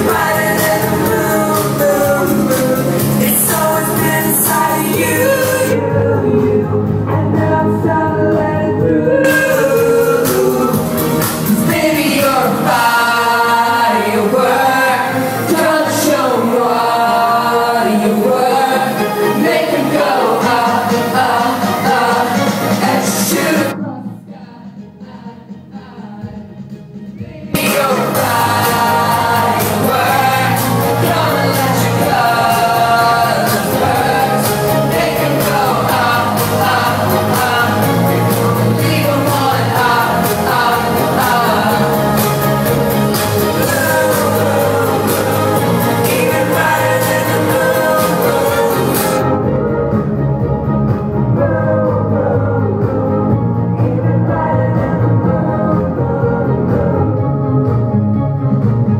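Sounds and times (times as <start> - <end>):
person singing over backing track: 0.0 - 57.9
live pop band music: 0.0 - 58.9
steady drum beat: 27.5 - 49.2.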